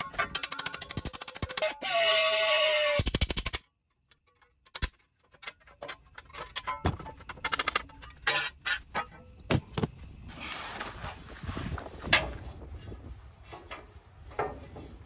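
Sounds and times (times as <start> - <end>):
metal clicks and knocks: 3.8 - 10.0.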